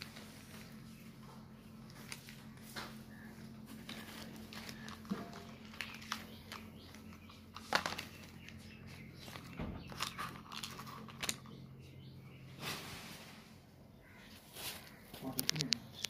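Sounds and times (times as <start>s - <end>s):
plastic toys clicking and knocking: 9.3s - 11.6s.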